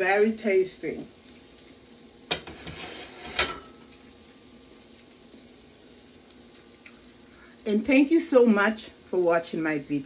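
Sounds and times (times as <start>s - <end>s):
faint pan sizzle: 0.0s - 10.0s
plate clinking on counter: 2.3s - 3.8s.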